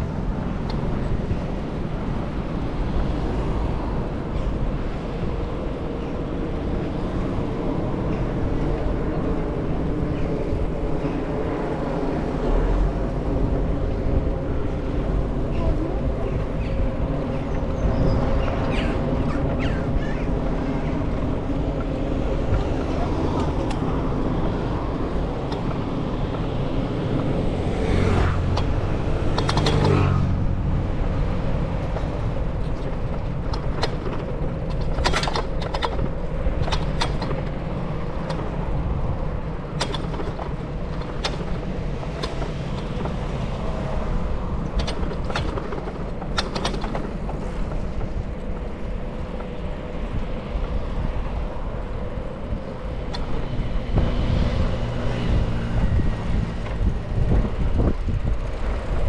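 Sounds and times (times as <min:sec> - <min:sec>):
bicycle rumble: 0:00.0 - 0:59.0
bicycle clicks and rattles: 0:16.4 - 0:59.0
loud passing vehicle: 0:26.7 - 0:31.4.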